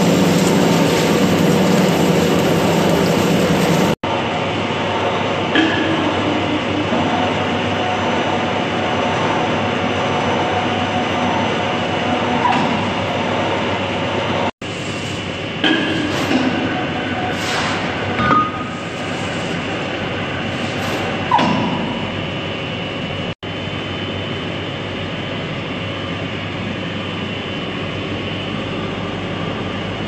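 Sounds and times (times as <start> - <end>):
lathe machine drone with whine: 0.0 - 15.6.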